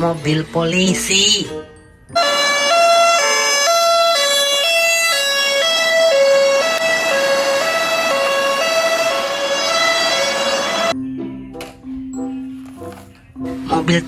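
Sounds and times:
police two-tone siren: 0:02.1 - 0:11.0.

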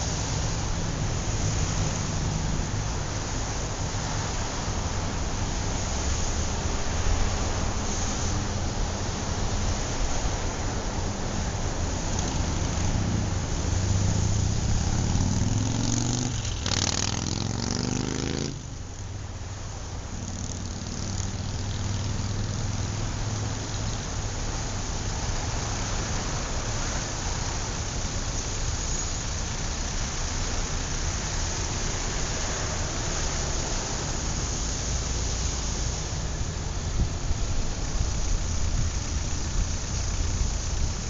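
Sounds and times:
city street traffic: 0:00.0 - 0:41.0
vehicle engine accelerating: 0:00.0 - 0:41.0.

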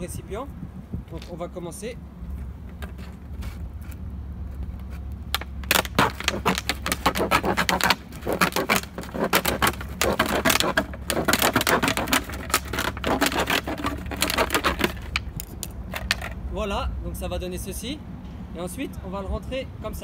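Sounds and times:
scissors cutting crinkling plastic: 0:05.4 - 0:16.3.

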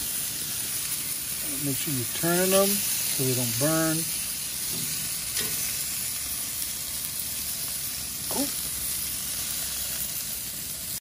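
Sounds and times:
vegetables sizzling in grill pan: 0:00.0 - 0:11.0.

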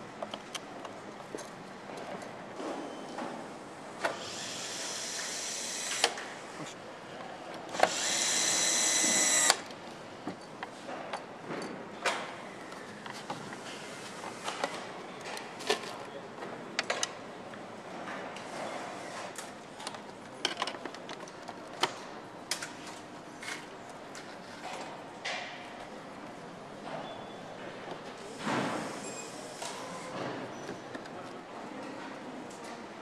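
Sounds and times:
power screwdriver running: 0:04.2 - 0:06.2, 0:07.8 - 0:09.7.

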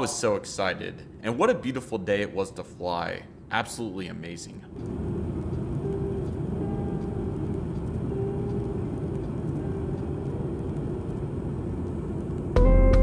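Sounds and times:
faint hum: 0:00.0 - 0:13.0
aircraft cabin airflow rush: 0:04.6 - 0:13.0.

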